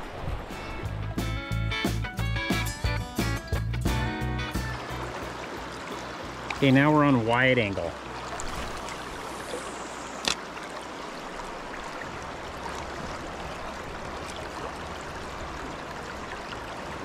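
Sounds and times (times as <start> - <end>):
river current rushing: 4.4 - 17.0.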